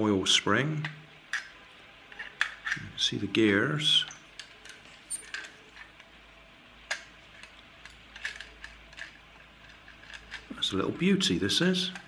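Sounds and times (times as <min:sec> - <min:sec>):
toy car clicks and taps: 0:06.9 - 0:10.6.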